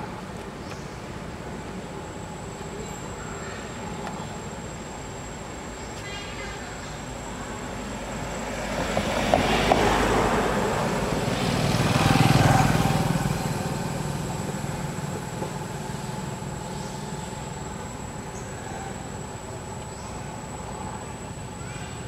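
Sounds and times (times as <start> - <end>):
vehicle passing by: 7.7 - 17.6.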